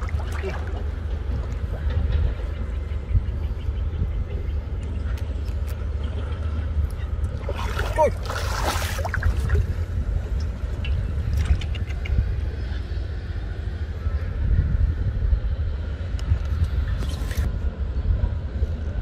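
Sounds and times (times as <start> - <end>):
water splashing: 0.0 - 1.0, 7.3 - 9.7
wind rumble on microphone: 0.0 - 19.0.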